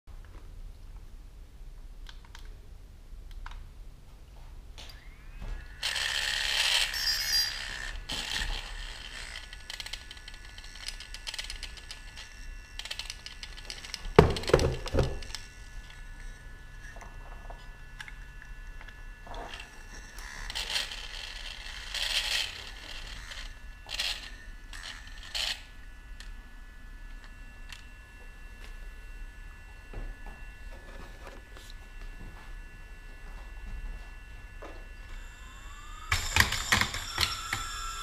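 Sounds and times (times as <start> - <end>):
faint steady high tones: 4.8 - 38.0
drone being handled: 5.6 - 25.6, 30.4 - 32.2.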